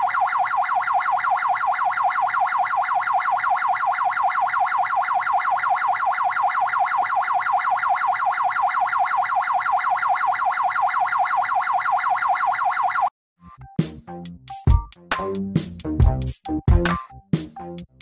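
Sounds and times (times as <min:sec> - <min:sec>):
ambulance siren yelping: 0:00.0 - 0:13.1.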